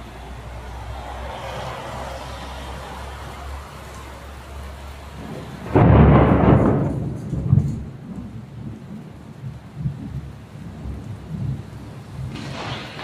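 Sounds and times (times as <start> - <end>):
rain falling: 0.0 - 13.0
thunderclap rumbling: 5.1 - 13.0.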